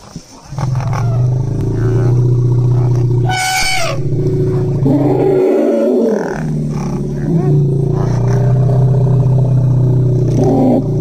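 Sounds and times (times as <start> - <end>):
rhinoceros low moan: 0.5 - 11.0
rhinoceros high squeal: 3.2 - 4.0.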